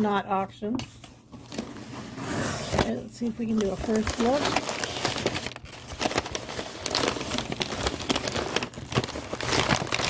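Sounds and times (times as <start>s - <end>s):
packing paper crinkling: 3.4s - 10.0s.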